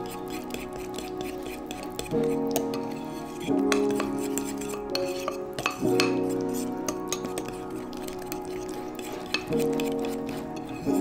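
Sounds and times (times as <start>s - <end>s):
fork scraping ceramic bowl: 0.0s - 11.0s
soft background music: 0.0s - 11.0s.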